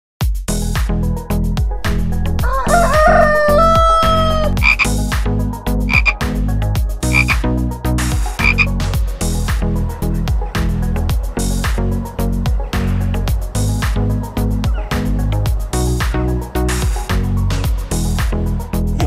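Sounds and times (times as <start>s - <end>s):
background music with steady beat: 0.2s - 19.0s
rooster crowing: 1.8s - 4.9s
frog croaking: 1.9s - 5.0s, 5.9s - 6.2s, 7.1s - 7.4s, 8.4s - 8.7s.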